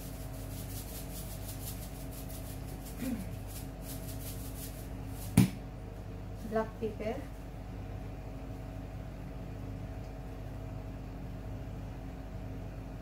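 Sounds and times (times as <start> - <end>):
salt shaker rattling: 0.0 - 5.4
low electrical hum: 0.0 - 13.0.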